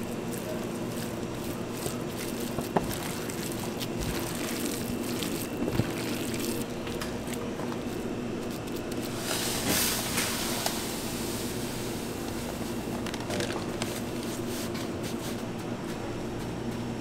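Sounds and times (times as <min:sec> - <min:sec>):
wet squishing of kneaded shrimp: 0:00.0 - 0:10.7.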